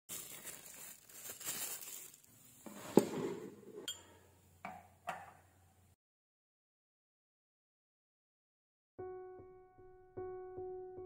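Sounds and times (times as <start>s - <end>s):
plastic wrapping crinkling: 0.0s - 2.7s
spoon clinking on teacup: 3.9s - 4.2s.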